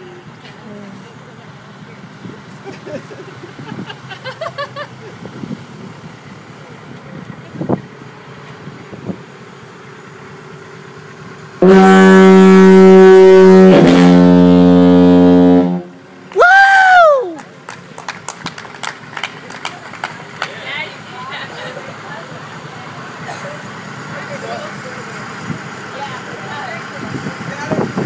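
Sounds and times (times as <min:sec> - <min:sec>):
foghorn blast: 0:11.6 - 0:16.0.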